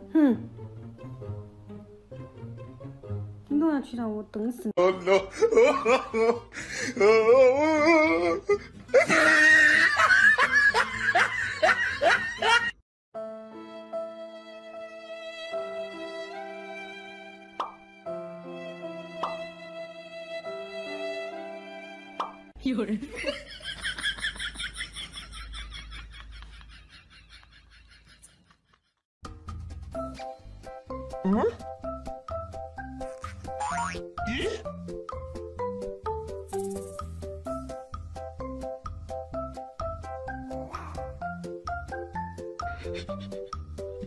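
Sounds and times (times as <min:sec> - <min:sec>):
person laughing hard: 0:04.8 - 0:12.8, 0:34.3 - 0:34.7, 0:42.7 - 0:43.4.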